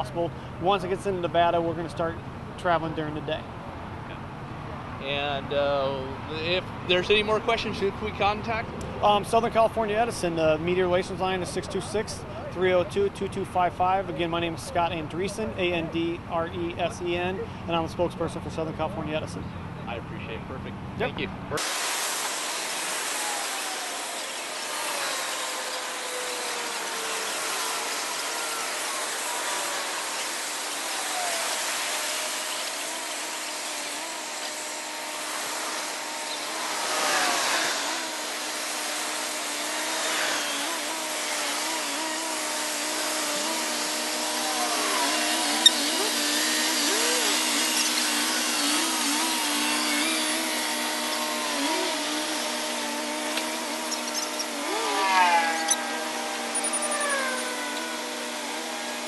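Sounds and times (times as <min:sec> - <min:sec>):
diesel truck engines droning: 0:00.0 - 0:21.6.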